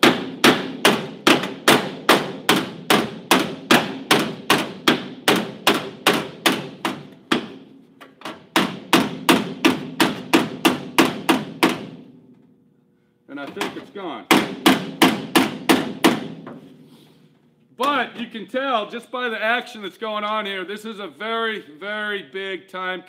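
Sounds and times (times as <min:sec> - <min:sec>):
hammer tapping sheet metal: 0:00.0 - 0:12.1, 0:13.4 - 0:16.7.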